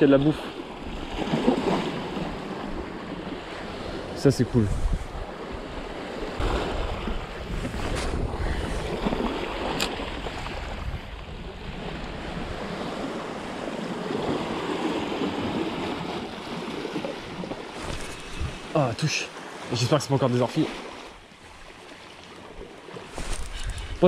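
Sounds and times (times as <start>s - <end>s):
sea waves lapping on rocks: 0.0s - 4.2s, 5.2s - 24.0s
wind rumbling on microphone: 4.4s - 18.7s.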